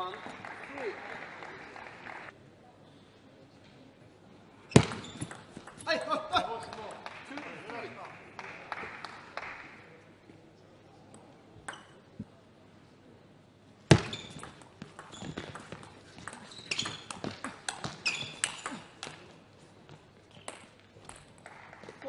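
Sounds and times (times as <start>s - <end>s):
shoes squeaking on floor: 4.7s - 5.8s, 13.9s - 18.8s.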